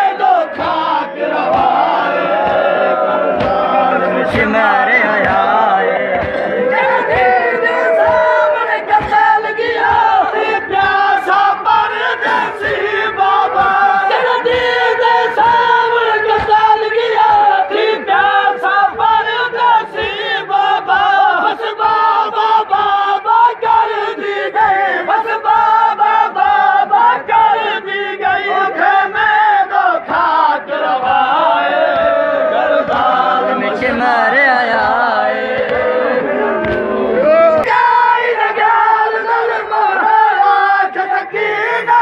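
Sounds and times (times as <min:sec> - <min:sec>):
crowd of men chanting: 0:00.0 - 0:42.0
shouted cries: 0:06.2 - 0:33.4.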